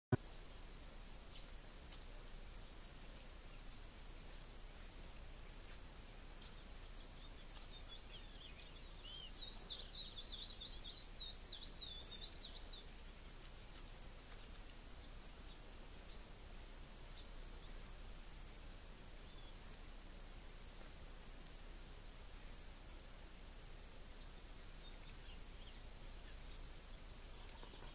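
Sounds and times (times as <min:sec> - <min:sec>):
insect high continuous whine: 0:00.1 - 0:27.9
small bird twittering: 0:06.4 - 0:12.9.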